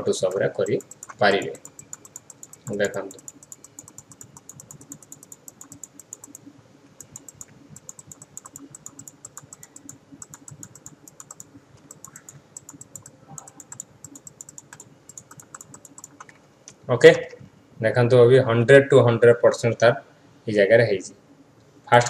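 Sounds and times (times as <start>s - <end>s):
computer mouse clicking: 0.0s - 16.4s.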